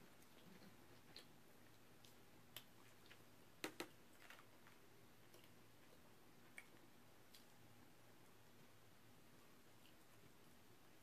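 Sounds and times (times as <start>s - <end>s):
chewing: 0.0s - 3.3s.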